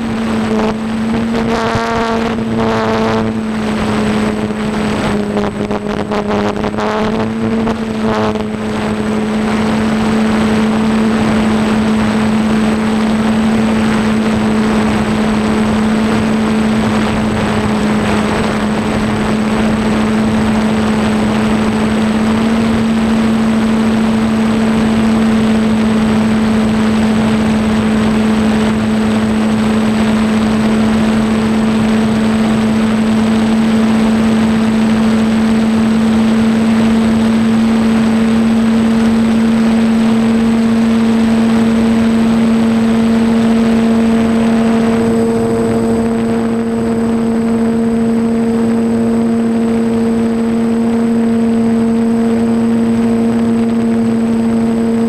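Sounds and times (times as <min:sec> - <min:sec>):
drone propellers humming: 0:00.0 - 0:55.0
wind rushing over microphone: 0:00.0 - 0:55.0.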